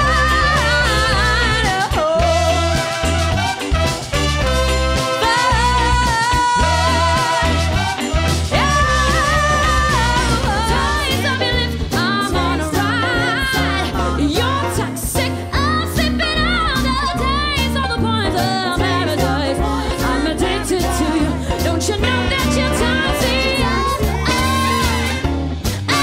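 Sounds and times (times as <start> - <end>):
trumpet: 0.0 - 11.4, 20.1 - 26.0
saxophone: 0.0 - 14.5, 19.7 - 26.0
drums: 0.0 - 26.0
piano: 0.0 - 26.0
walking upright bass line: 0.0 - 26.0
singers: 5.0 - 17.7, 18.3 - 26.0.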